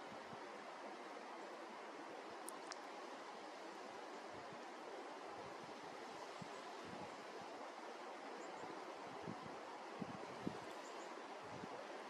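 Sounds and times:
wind hiss: 0.0s - 12.0s
wind gusts buffeting microphone: 9.1s - 12.0s.

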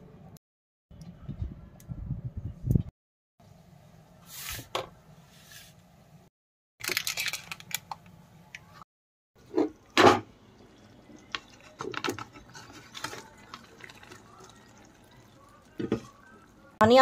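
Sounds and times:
paper wrapper rustling: 6.8s - 7.9s.

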